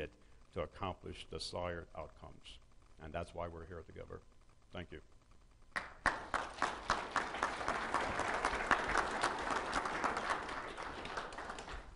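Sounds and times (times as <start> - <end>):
audience applauding: 5.8 - 11.9.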